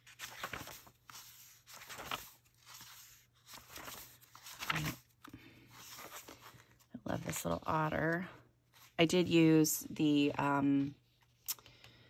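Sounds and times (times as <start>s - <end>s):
paper pages rustling: 0.0s - 9.2s.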